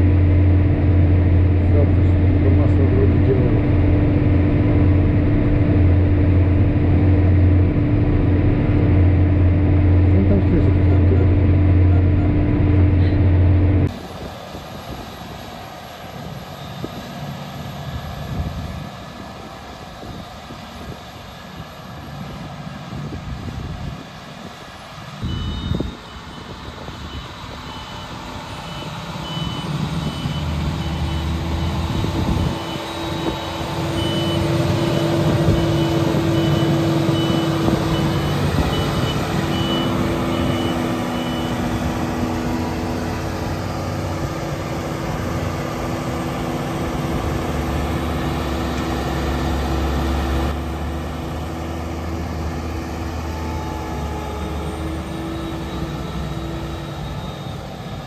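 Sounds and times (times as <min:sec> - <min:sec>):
rough machinery noise: 0:00.0 - 0:58.0
tractor engine drone: 0:00.0 - 0:58.0
reversing beeper: 0:09.9 - 0:13.9, 0:25.2 - 0:58.0.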